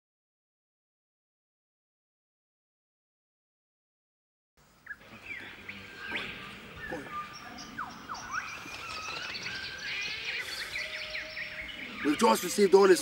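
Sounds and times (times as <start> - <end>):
birds chirping and whistling: 4.8 - 13.0.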